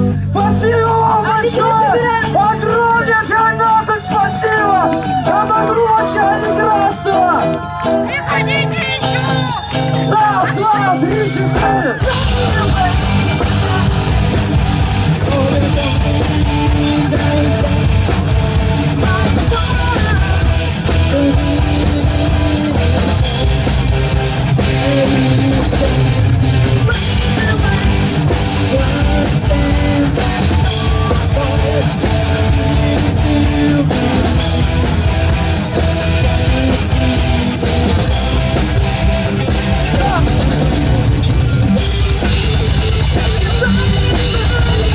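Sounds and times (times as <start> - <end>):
live rock band playing: 0.0 - 44.9
woman singing: 15.1 - 17.9, 19.0 - 23.4, 24.7 - 26.2, 26.8 - 34.4, 43.3 - 44.9.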